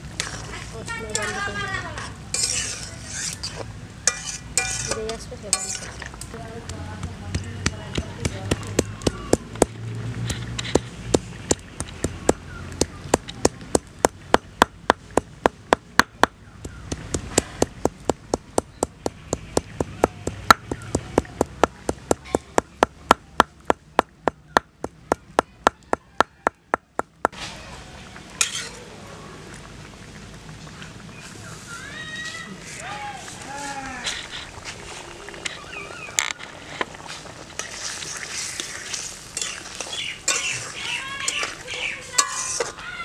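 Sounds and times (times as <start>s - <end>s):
paste scraped off stone: 2.4s - 5.0s, 42.1s - 42.8s
stone pestle pounding: 13.1s - 27.4s.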